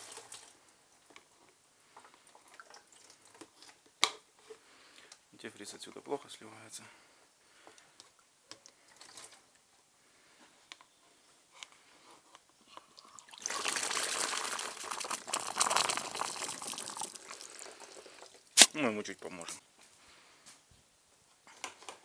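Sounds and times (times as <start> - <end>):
liquid pouring into a container: 13.0 - 18.6.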